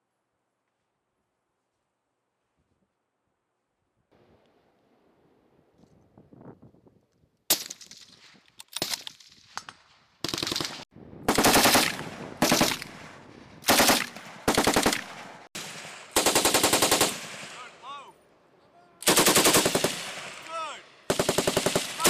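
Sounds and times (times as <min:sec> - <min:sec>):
machine gun bursts: 0:10.2 - 0:12.9, 0:13.7 - 0:15.1, 0:19.0 - 0:20.3, 0:21.1 - 0:22.0.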